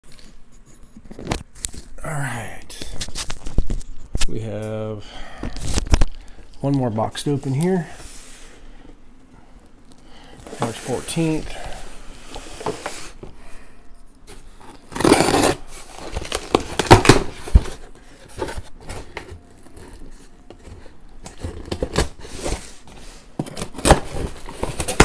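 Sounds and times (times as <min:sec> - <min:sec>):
knife ripping through tape: 0:14.9 - 0:15.7.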